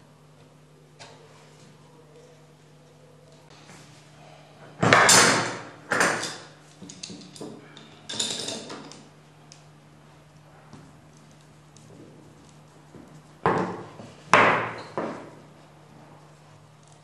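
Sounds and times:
faint steady hum: 0:00.0 - 0:17.0
metal tools clattering and scraping: 0:06.2 - 0:09.0.

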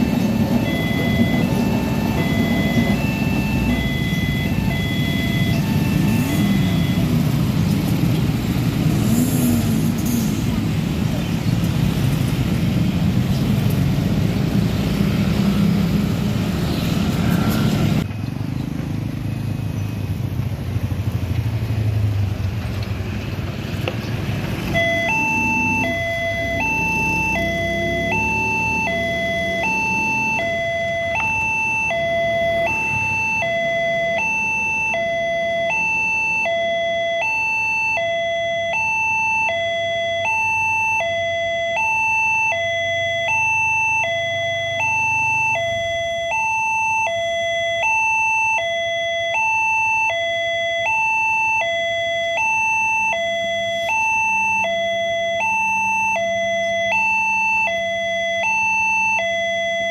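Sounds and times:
two-tone level-crossing alarm: 0:00.0 - 0:10.5, 0:24.7 - 0:59.9
low traffic engine rumble: 0:00.0 - 0:59.9.

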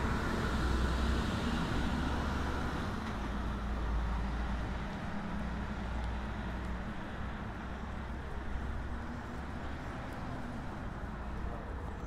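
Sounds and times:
low rumble of road vehicles: 0:00.0 - 0:12.0.

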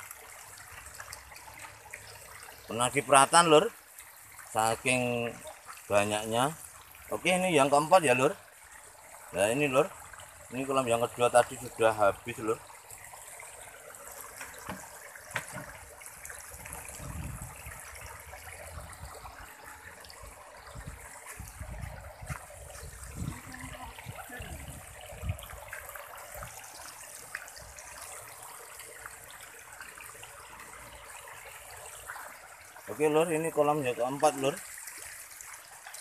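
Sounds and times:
dull knocks: 0:14.4 - 0:15.8.

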